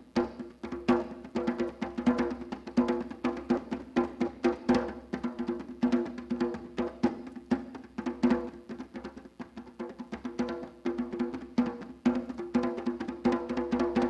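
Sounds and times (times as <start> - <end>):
hand drumming on djembe: 0.0 - 14.0.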